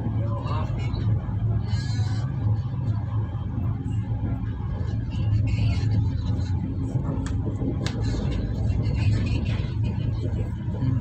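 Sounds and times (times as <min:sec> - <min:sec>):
vehicle engine and tyres rumbling: 0:00.0 - 0:11.0.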